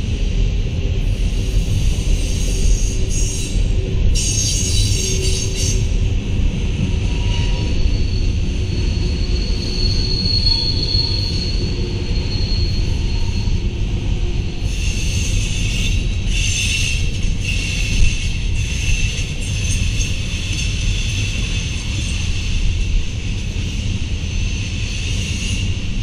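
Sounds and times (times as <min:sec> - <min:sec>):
freight train wheels rumbling: 0:00.0 - 0:26.0
high wheel squeal: 0:01.4 - 0:06.0, 0:07.0 - 0:13.8, 0:14.6 - 0:22.9.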